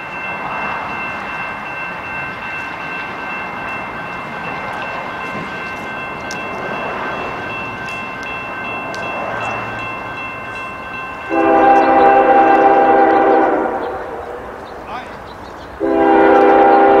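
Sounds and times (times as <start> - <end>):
train rushing noise: 0.0 - 17.0
locomotive air horn chord: 11.3 - 14.2, 15.8 - 17.0.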